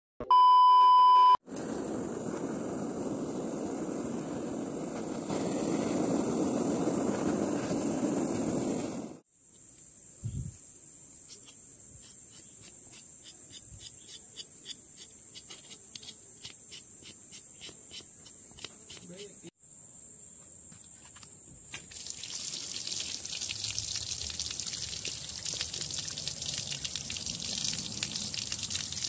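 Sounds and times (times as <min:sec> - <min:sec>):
blowtorch flame hissing: 0:01.5 - 0:09.3
insects buzzing: 0:02.3 - 0:29.0
knife scraping charred fur: 0:11.3 - 0:19.3.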